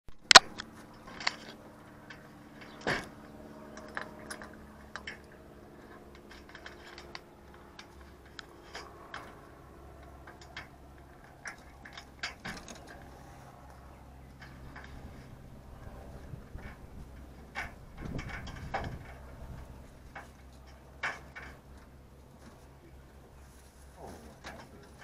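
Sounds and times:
rabbits rustling on straw: 22.1s - 25.0s.

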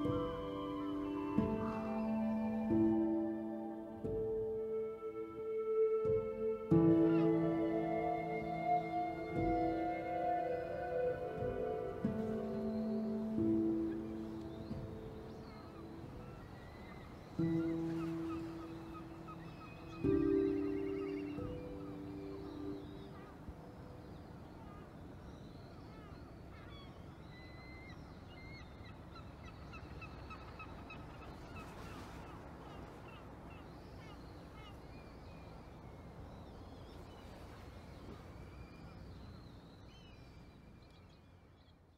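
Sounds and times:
low held tone: 0.0s - 14.2s
outdoor background noise by sea: 0.0s - 41.9s
small birds chirping: 6.0s - 41.8s.

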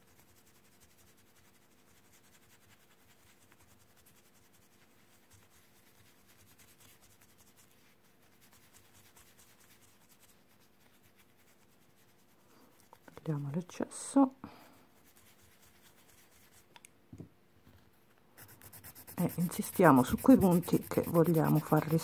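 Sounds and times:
file scratching on resin: 18.4s - 22.0s.

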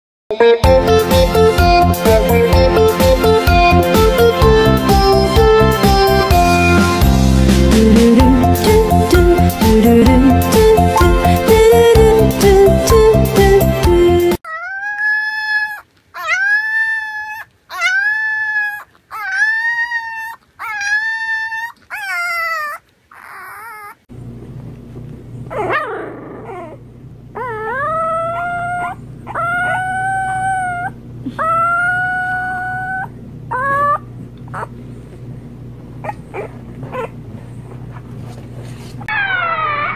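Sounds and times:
music: 0.3s - 14.4s
puppies howling: 14.5s - 24.1s, 27.4s - 34.7s, 36.0s - 37.2s, 39.0s - 39.9s.

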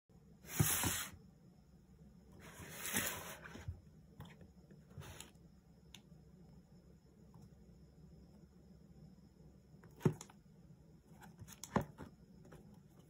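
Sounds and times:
cardboard parcel sliding on wood: 0.5s - 1.2s, 2.4s - 3.8s.

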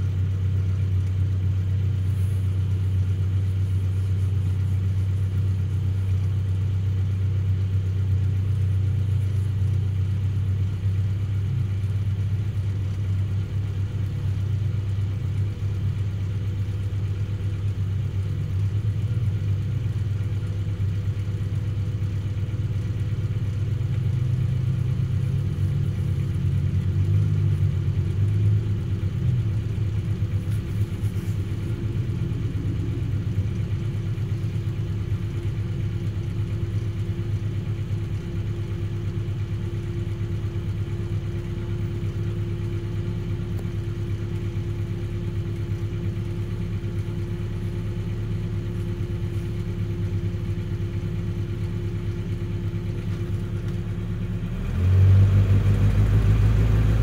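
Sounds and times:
vehicle engine idling: 0.0s - 57.0s.

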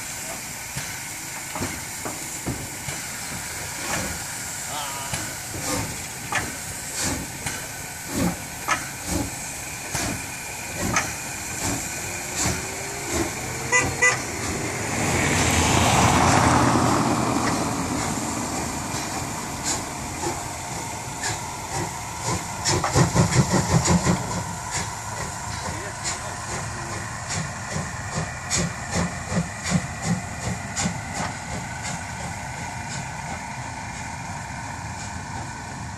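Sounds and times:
steam hissing: 0.0s - 35.9s
steam locomotive chuffing: 0.0s - 35.9s
locomotive whistle toot: 13.7s - 14.3s.

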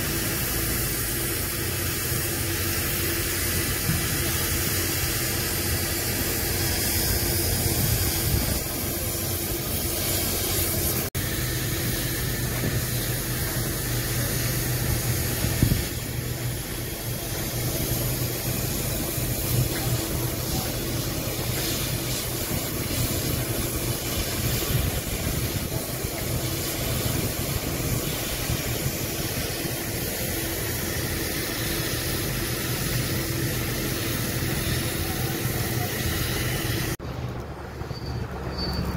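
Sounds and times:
engine running: 0.0s - 38.9s.

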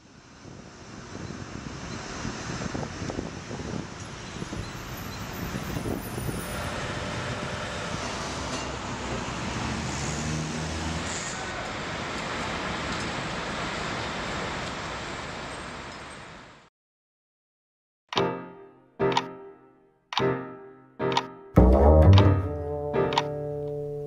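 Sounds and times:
road traffic noise: 0.2s - 16.5s.

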